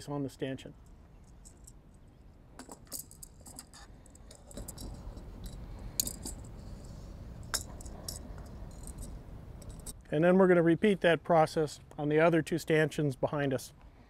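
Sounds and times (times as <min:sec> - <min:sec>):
small metallic clicks: 0:02.6 - 0:06.5, 0:07.4 - 0:10.0.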